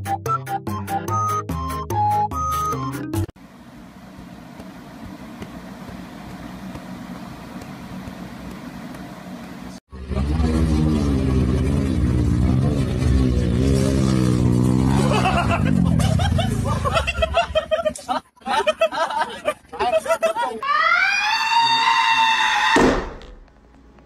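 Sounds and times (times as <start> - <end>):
dirt bike engine revving: 9.9 - 17.6.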